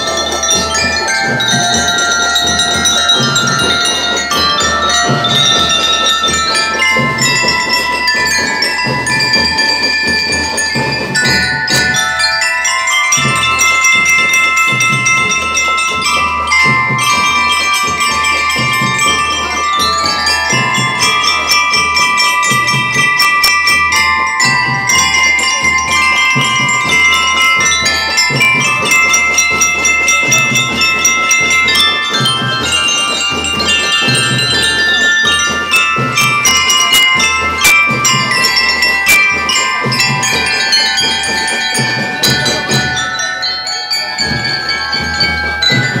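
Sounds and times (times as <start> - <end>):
xylophone melody: 0.0 - 46.0.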